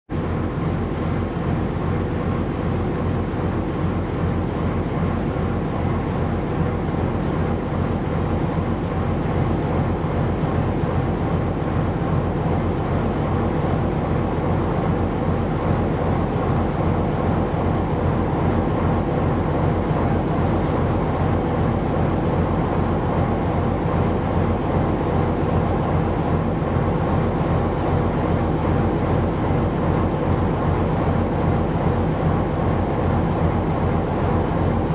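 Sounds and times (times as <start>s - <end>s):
ship engine droning: 0.1s - 34.9s.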